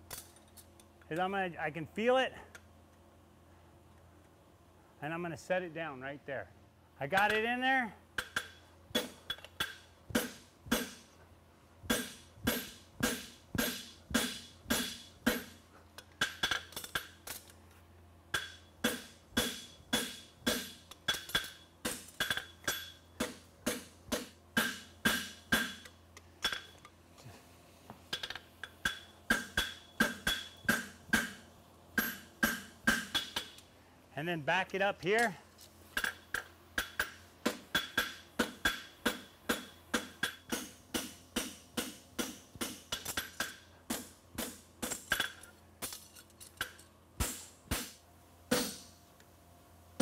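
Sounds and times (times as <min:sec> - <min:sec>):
hammer striking metal on anvil: 0:08.2 - 0:11.1, 0:11.9 - 0:15.6, 0:18.3 - 0:26.7, 0:28.1 - 0:31.4, 0:32.0 - 0:33.6, 0:36.0 - 0:45.4, 0:47.2 - 0:48.9.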